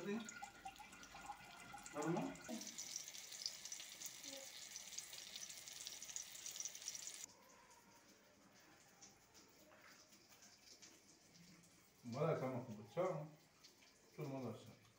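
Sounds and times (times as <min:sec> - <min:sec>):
slices sizzling in oil: 0:02.5 - 0:07.3.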